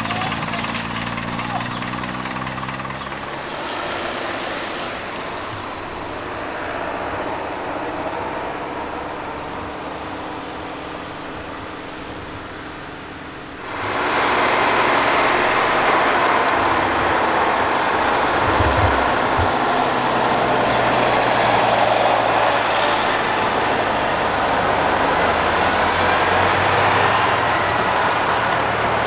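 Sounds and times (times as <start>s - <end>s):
vehicle engines rumbling: 0.0s - 29.0s.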